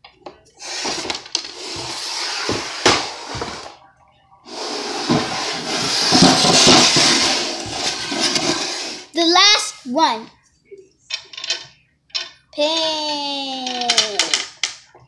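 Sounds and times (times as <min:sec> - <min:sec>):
scraping and rubbing: 0:00.6 - 0:03.8, 0:04.5 - 0:09.1.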